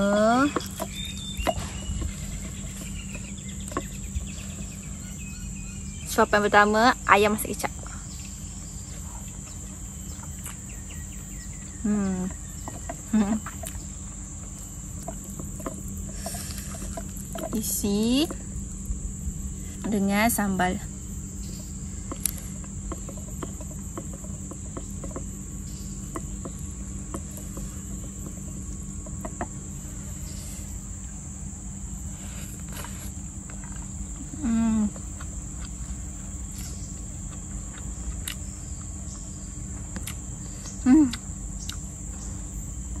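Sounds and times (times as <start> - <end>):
insects chirring: 0.0 - 43.0.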